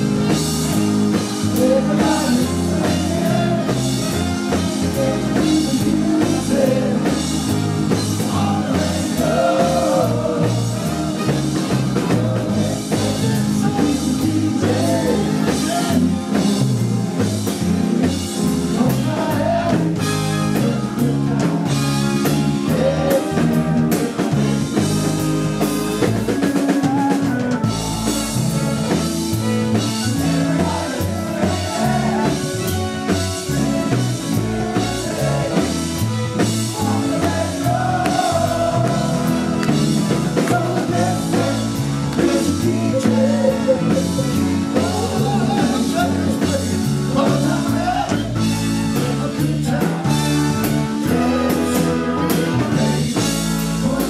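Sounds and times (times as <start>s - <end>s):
lead singer singing: 0.0s - 16.6s, 18.4s - 25.2s, 29.5s - 54.0s
live rock band playing: 0.0s - 54.0s
steady drum beat: 0.0s - 54.0s.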